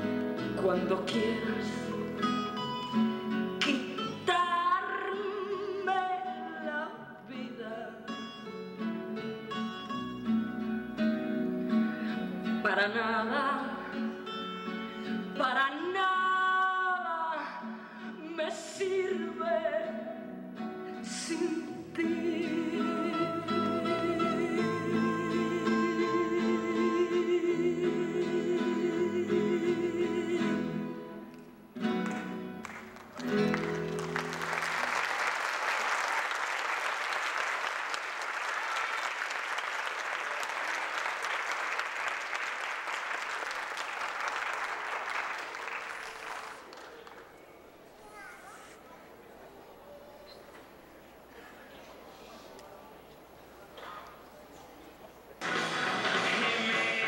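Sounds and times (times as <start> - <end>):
person singing with vibrato: 0.4 - 2.4, 3.5 - 8.2, 20.9 - 31.2, 55.4 - 57.0
audience applauding: 32.0 - 47.6, 55.4 - 57.0
instrumental accompaniment: 55.4 - 57.0.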